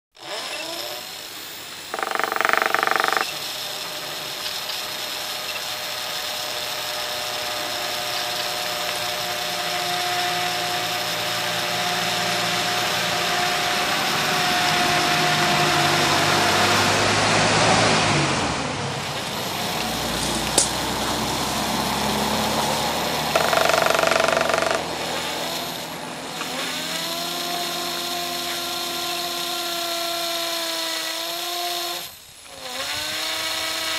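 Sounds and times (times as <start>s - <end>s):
sharp click: 19.2s - 20.8s.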